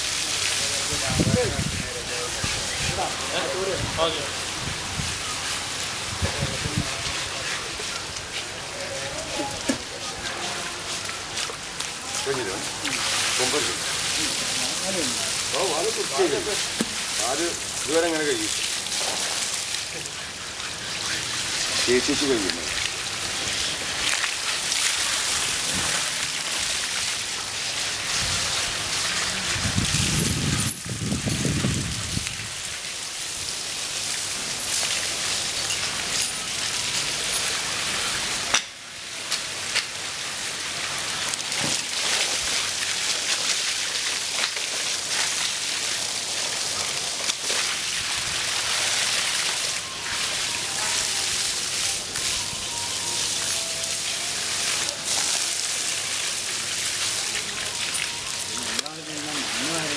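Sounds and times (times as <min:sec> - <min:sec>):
water spraying from hose: 0:00.0 - 0:59.9.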